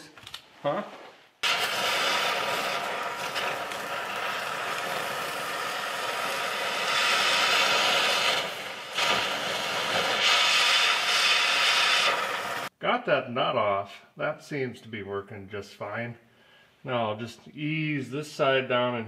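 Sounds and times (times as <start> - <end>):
cutting torch hissing: 1.4 - 12.7.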